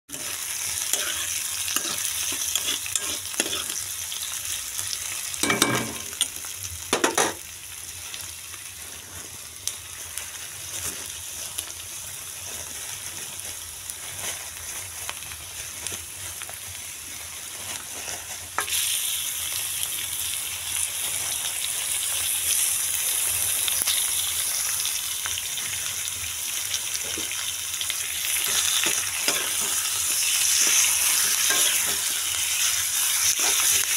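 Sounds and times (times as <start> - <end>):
onions sizzling in oil: 0.1 - 33.9
stirring scrape and knock: 1.0 - 3.8.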